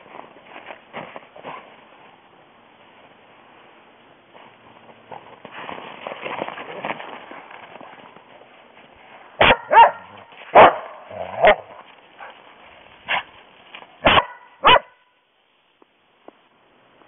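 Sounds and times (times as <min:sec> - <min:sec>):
dog barking: 0:09.4 - 0:12.3, 0:14.0 - 0:15.1.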